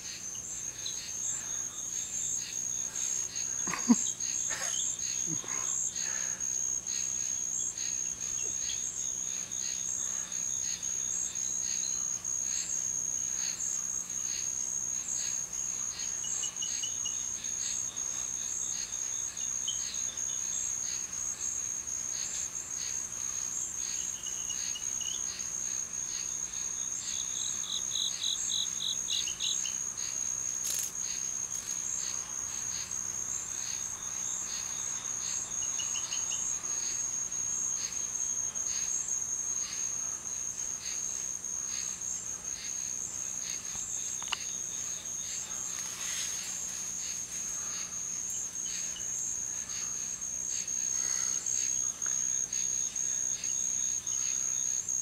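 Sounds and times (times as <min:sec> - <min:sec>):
insect chirps: 0:00.0 - 0:55.0
insect trill: 0:00.0 - 0:55.0.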